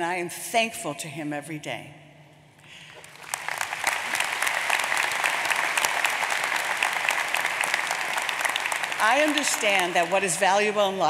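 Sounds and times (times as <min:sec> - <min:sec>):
audience applauding: 0:02.8 - 0:11.0.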